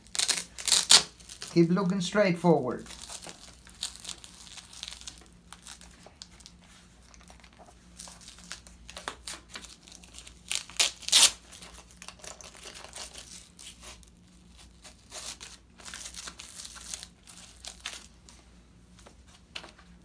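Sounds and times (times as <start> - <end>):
hook-and-loop straps ripping: 0.0 - 1.7, 8.0 - 18.1.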